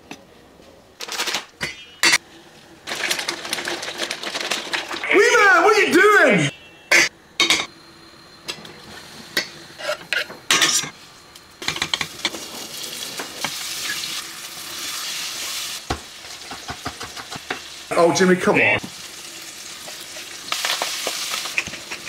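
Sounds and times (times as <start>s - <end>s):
utensils clinking on metal pan: 1.6s - 2.2s
food sizzling in hot oil: 11.6s - 17.9s, 18.8s - 22.0s.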